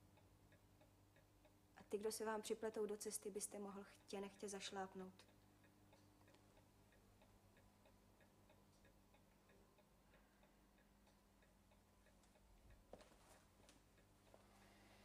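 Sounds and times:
clock ticking faintly: 0.0 - 15.0
low steady hum: 0.0 - 15.0
soft rustle: 12.2 - 15.0.

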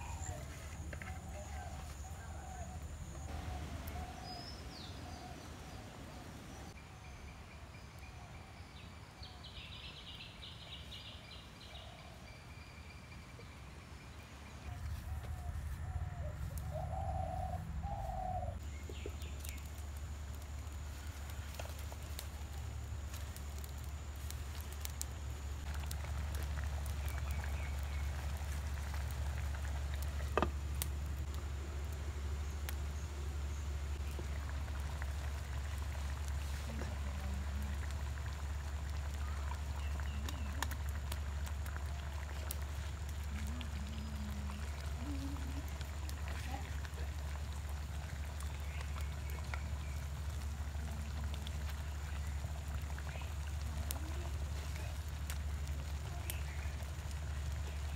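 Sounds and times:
burning sticks crackling: 0.0 - 6.8, 14.6 - 57.9
low steady rumble: 14.2 - 57.9
dove cooing: 14.9 - 18.6, 43.3 - 45.8
curry simmering in pot: 18.6 - 57.9.

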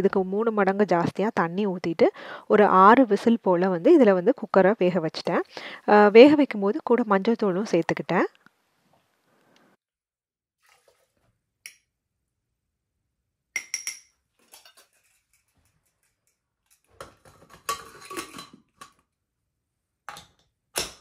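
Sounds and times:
steel cup clinking down: 13.6 - 15.4
pot lid clattering: 17.0 - 18.9.

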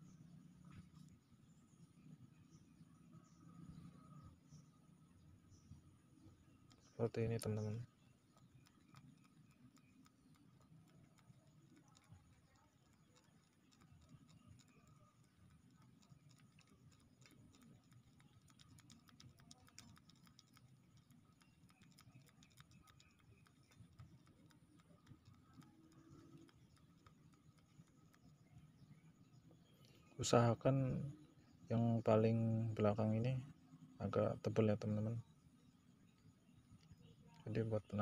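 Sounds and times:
faint light ticks: 5.6 - 35.3.

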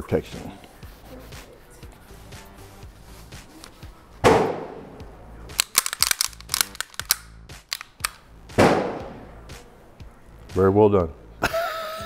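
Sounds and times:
quick metallic clicks: 5.6 - 8.2
sharp metallic clack of pistol: 5.6 - 8.2.

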